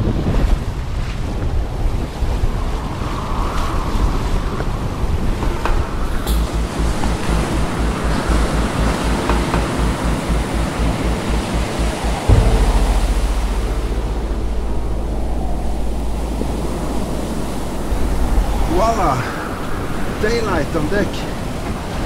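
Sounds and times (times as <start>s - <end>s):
breaking sea: 0.0s - 22.0s
wind: 0.0s - 22.0s
wind rumble on microphone: 0.0s - 22.0s.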